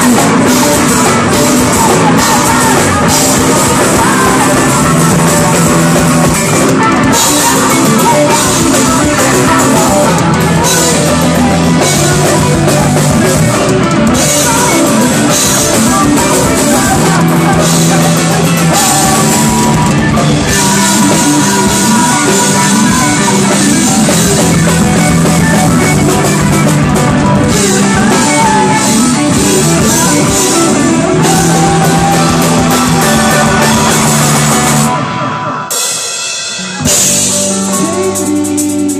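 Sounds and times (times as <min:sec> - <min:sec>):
rock band playing live: 0:00.0 - 0:38.9.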